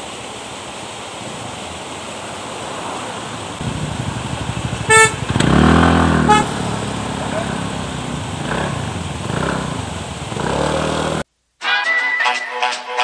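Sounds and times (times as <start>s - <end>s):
motorbike engine: 3.6s - 11.2s.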